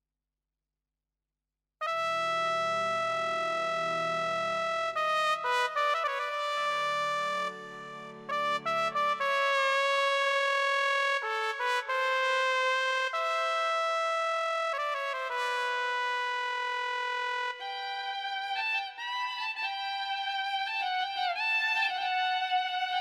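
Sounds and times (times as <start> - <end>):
synthesizer brass melody: 1.8 - 17.9.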